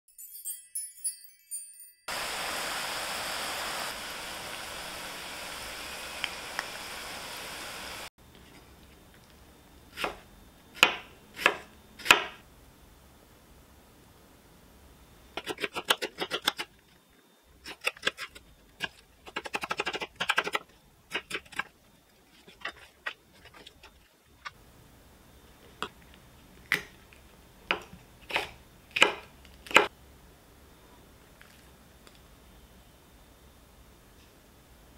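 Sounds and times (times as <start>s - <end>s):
knife chopping on wooden board: 10.0s - 10.2s, 10.8s - 12.4s, 27.7s - 29.9s.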